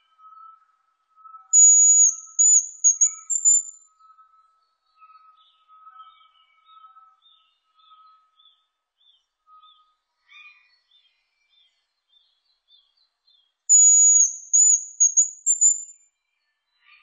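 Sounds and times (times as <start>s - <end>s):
faint short bird chirps: 1.6s - 3.8s, 13.7s - 16.0s
high bird whistle: 1.6s - 3.8s, 13.7s - 16.0s.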